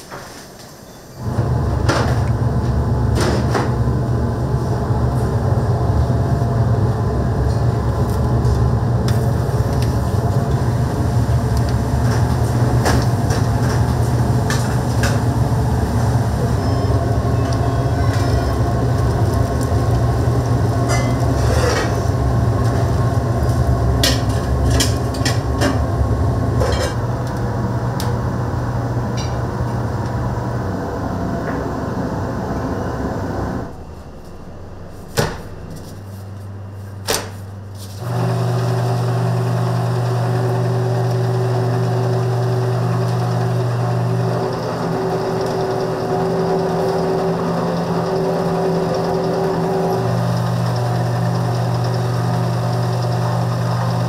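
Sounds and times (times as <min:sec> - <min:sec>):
low mechanical rumble: 0:01.1 - 0:54.0
utensils and dishes clinking: 0:20.8 - 0:22.0, 0:26.6 - 0:27.0.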